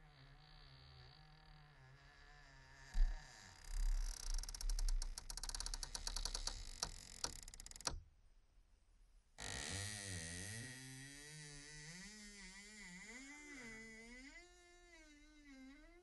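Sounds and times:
wooden door creaking: 0.0s - 8.0s.

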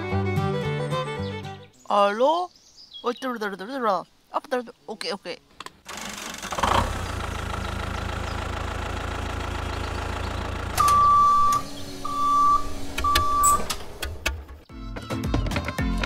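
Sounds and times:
tractor engine rumbling: 5.6s - 14.7s
electronic reversing beeps: 10.8s - 13.7s.

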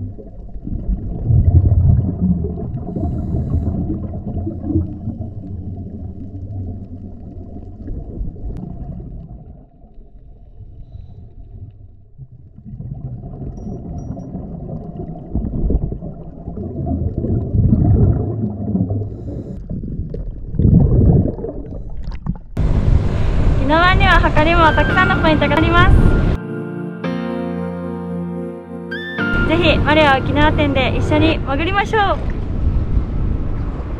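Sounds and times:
scuba exhaust bubbling: 0.0s - 22.8s
muffled underwater rumbling: 0.0s - 26.4s.

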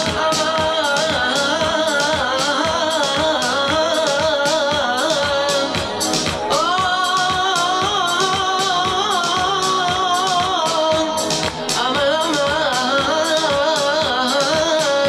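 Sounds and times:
person singing: 0.0s - 15.0s
steady dance beat: 0.0s - 15.0s.

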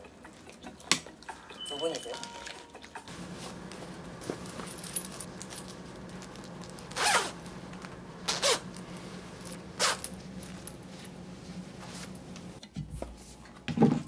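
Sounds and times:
zipper being pulled: 6.9s - 7.4s, 8.2s - 8.8s, 9.8s - 10.2s.

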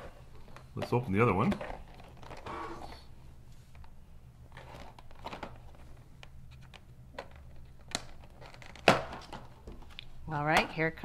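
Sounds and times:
plastic wrapping rustling: 0.0s - 3.1s, 4.5s - 10.2s.

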